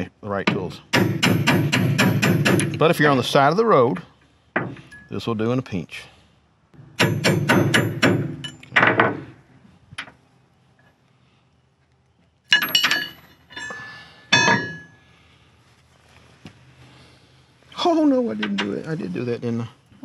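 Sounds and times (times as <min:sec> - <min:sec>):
hammer tapping on steel: 0:00.5 - 0:02.8, 0:06.8 - 0:08.7
metal parts clinking on steel deck: 0:04.6 - 0:05.2, 0:06.8 - 0:09.0, 0:12.5 - 0:15.0.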